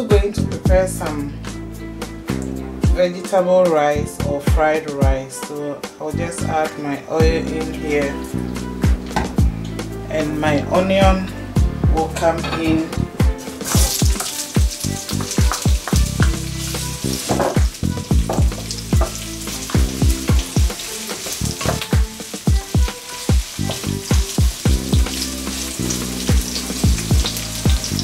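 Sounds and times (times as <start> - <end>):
low thumps beat: 8.6 - 10.0, 11.0 - 12.0, 13.0 - 16.5, 17.2 - 20.8, 21.6 - 25.2, 26.3 - 28.0
onions sizzling in oil: 13.4 - 28.0.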